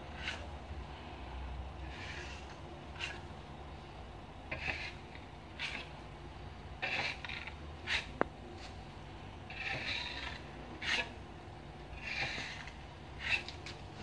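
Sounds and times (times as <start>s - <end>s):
metal knife scraping plaster wall: 0.0s - 0.6s, 1.8s - 3.4s, 4.5s - 6.0s, 6.8s - 8.8s, 9.5s - 14.0s.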